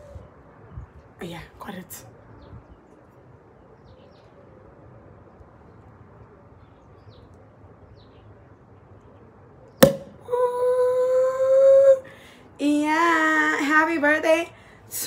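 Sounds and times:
cork popping: 9.8s - 10.2s.

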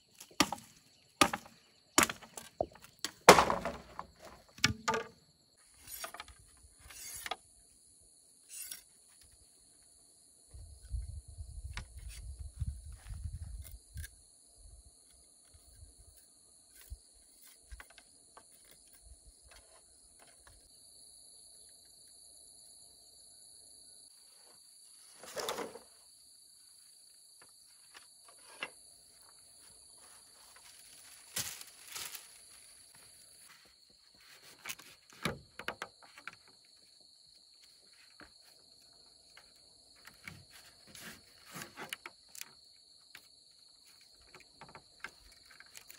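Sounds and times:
bamboo strips being handled: 0.0s - 7.4s, 27.7s - 36.5s, 39.3s - 45.9s
insects chirring: 0.0s - 45.9s.

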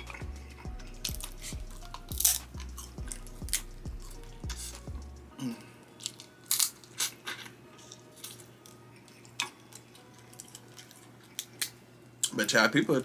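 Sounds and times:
chewing: 0.0s - 12.3s
crab shells cracking: 1.0s - 3.7s, 6.0s - 12.4s.

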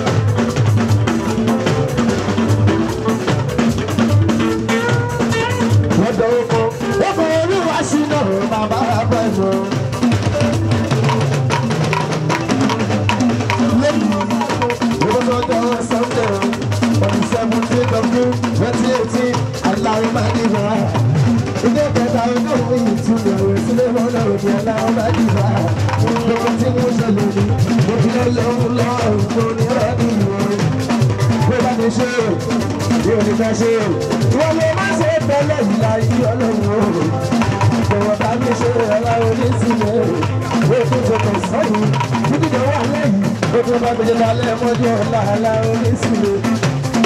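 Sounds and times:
drums and percussion: 0.0s - 47.0s
man singing into microphone: 5.9s - 9.9s, 13.5s - 21.0s, 21.6s - 30.7s, 31.3s - 47.0s.

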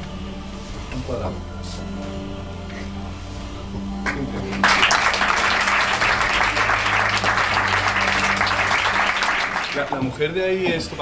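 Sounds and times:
audience applause: 4.1s - 10.0s.

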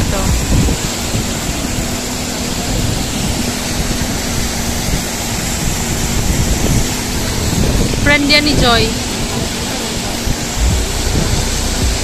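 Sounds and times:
water rushing over rocks: 0.0s - 12.0s.

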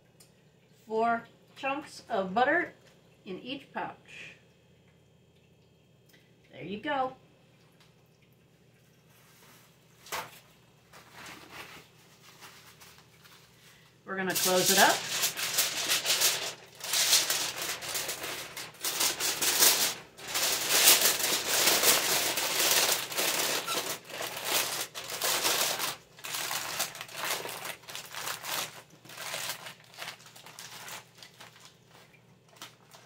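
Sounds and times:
aluminium foil crinkling: 9.3s - 33.0s.

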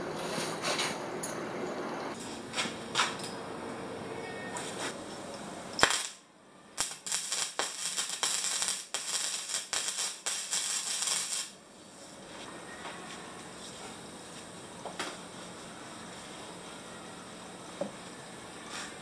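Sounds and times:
welding arc crackling: 5.7s - 11.6s.

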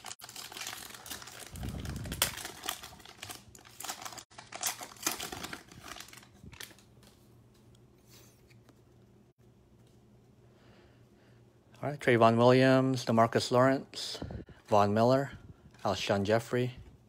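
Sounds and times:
wrapper crinkling as torn open: 0.0s - 7.2s.

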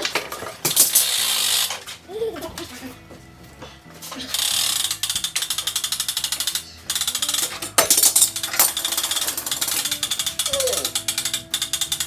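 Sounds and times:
hand winch ratcheting clicks: 4.3s - 12.0s.

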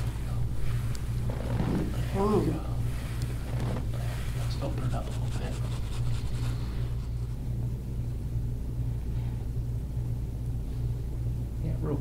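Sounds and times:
soft rubbing sounds: 0.0s - 7.7s
steady low hum: 0.0s - 12.0s.

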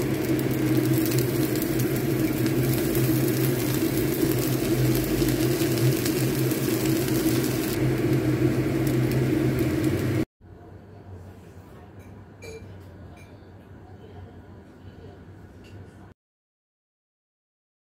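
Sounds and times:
extractor fan whirring: 0.0s - 10.3s.

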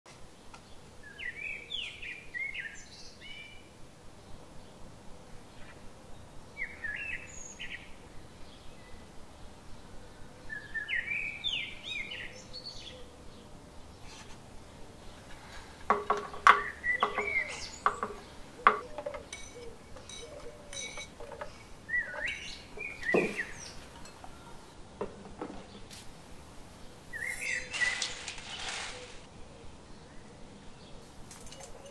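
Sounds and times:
birds chirping: 5.3s - 24.8s, 25.6s - 29.0s.

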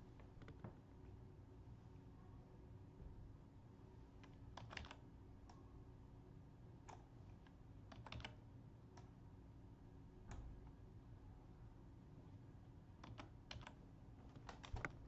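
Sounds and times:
low steady hum: 0.0s - 15.0s
computer mouse clicks: 4.2s - 5.6s, 6.9s - 8.4s, 13.0s - 15.0s.

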